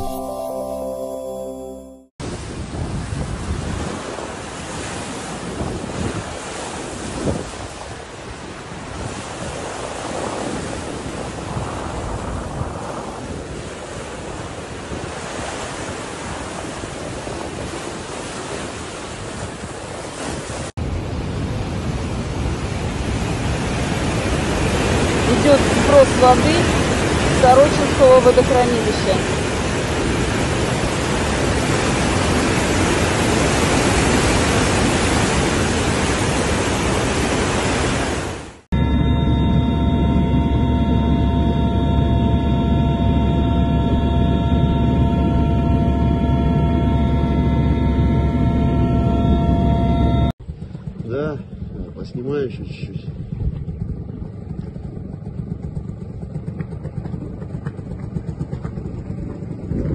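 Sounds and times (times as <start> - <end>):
wind buffeting microphone: 2.2 - 59.9
floodwater rushing: 22.8 - 38.6.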